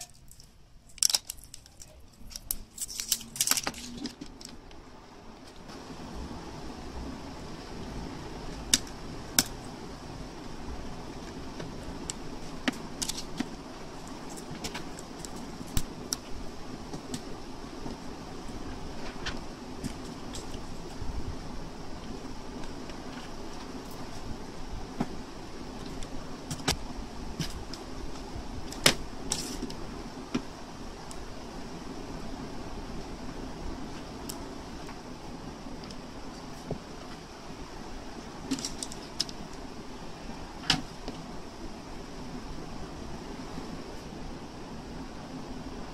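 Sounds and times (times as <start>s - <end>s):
foil pouch crinkling: 0.0s - 4.6s
crackling foil and sheets: 0.0s - 4.8s, 11.2s - 16.4s, 25.7s - 29.9s, 38.4s - 39.5s
steady background hiss: 0.0s - 45.9s.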